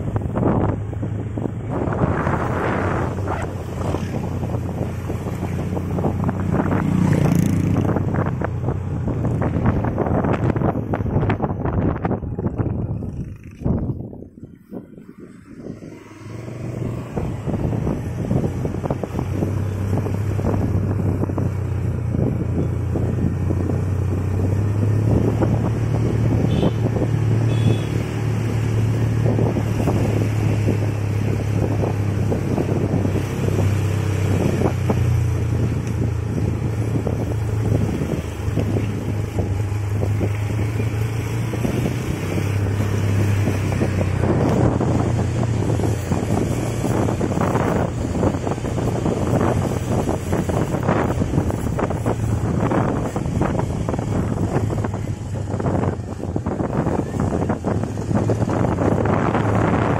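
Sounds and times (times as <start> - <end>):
motorcycle engine running: 0.0 - 15.1, 16.8 - 59.9
wind on microphone: 0.0 - 59.9.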